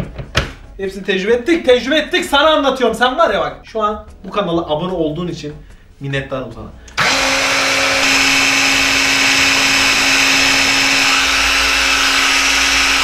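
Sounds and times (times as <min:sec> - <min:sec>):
electric food chopper grinding: 0:06.9 - 0:13.0.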